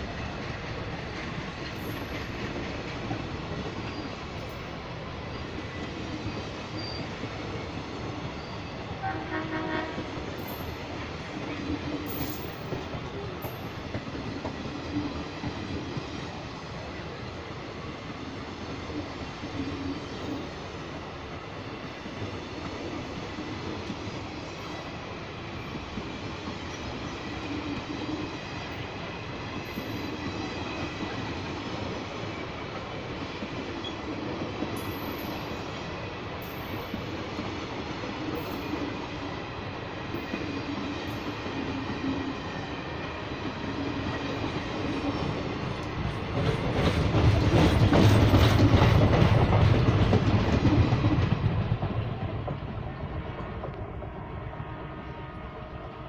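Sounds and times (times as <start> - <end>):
train wheels rumbling on rails: 0.0 - 56.0.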